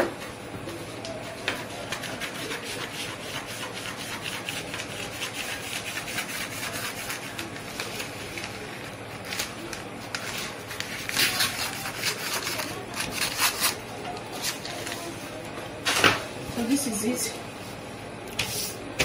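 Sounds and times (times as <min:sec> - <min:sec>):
paper rustling: 0:07.1 - 0:15.3
scissors snipping paper: 0:09.2 - 0:13.8.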